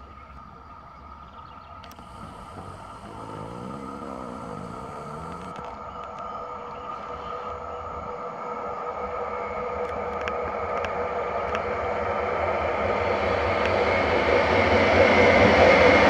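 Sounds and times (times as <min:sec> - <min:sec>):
wheel and rail noise: 0:00.0 - 0:16.0
electric train whine: 0:01.1 - 0:16.0
faint clicks: 0:01.8 - 0:06.3.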